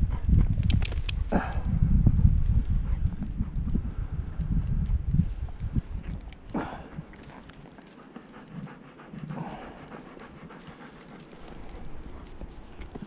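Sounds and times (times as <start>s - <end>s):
dry stalks crackling: 0.5s - 13.0s
dog panting hard: 2.6s - 3.8s, 6.8s - 13.0s.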